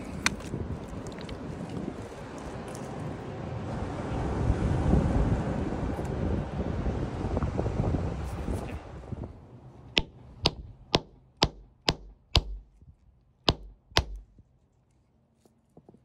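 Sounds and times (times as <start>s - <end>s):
hammer striking pebble: 10.0s - 12.8s, 13.5s - 14.4s.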